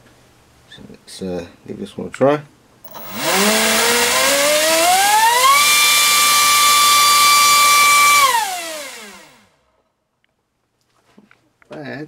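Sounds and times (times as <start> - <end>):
electric motor whine: 2.9 - 9.5.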